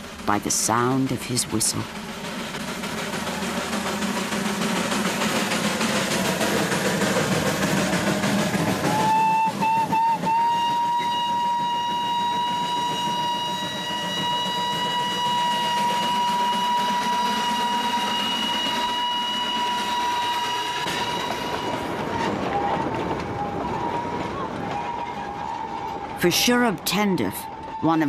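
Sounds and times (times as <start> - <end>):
running train noise: 0.0 - 28.0
steam locomotive whistle: 8.0 - 28.0.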